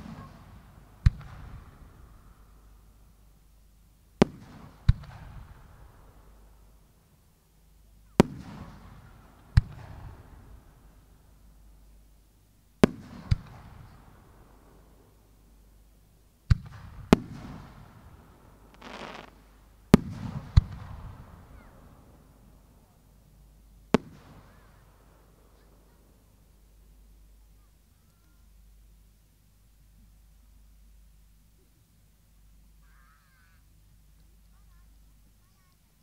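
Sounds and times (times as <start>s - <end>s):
firework bangs with echo: 12.8s - 14.9s, 16.5s - 22.2s, 24.0s - 24.7s
short hiss: 18.7s - 19.7s.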